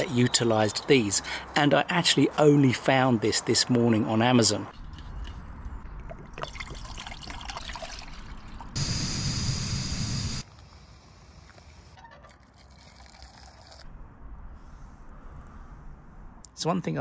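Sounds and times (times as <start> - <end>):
water pouring into mug: 6.1 - 8.6, 12.3 - 13.8
gas stove burner hissing: 8.8 - 10.5.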